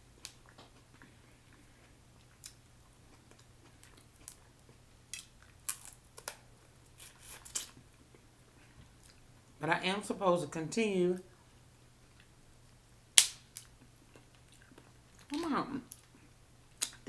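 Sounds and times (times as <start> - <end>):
faint low hum: 0.0 - 17.0
crab shells cracking: 5.1 - 6.5.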